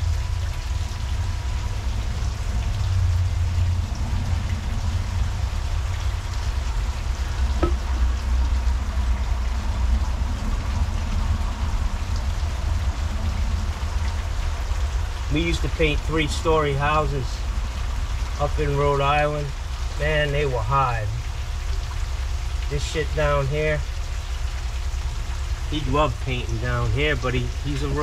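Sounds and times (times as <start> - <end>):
constant low rumble: 0.0 - 28.0
brush knocking paint can: 7.6 - 8.0.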